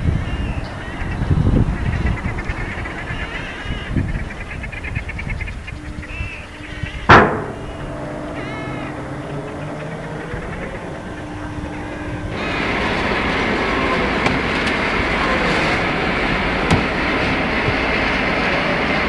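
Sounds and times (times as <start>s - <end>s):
gulls calling: 0.0s - 19.0s
steady low hum: 0.0s - 19.0s
low rumble: 3.9s - 19.0s
sharp loud bang: 7.1s - 8.0s.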